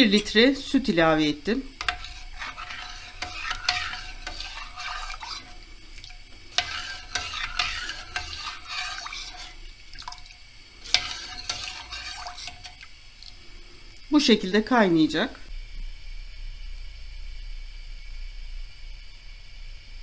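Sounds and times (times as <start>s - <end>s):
spoon clinking against pot: 0.0s - 0.7s, 1.8s - 10.2s, 10.8s - 12.8s
spoon stirring in metal pot: 0.0s - 13.3s.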